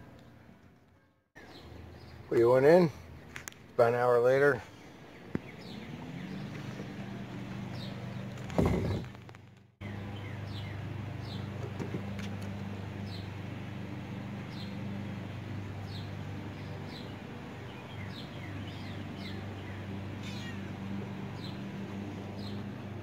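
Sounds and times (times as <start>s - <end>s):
low mechanical hum: 4.5s - 23.0s
bird chirping: 4.6s - 9.1s, 9.8s - 11.6s, 15.8s - 23.0s.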